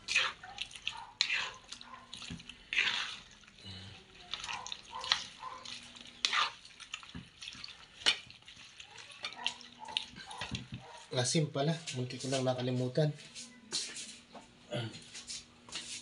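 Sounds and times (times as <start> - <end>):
wet splashes and sloshes: 0.0 - 11.1.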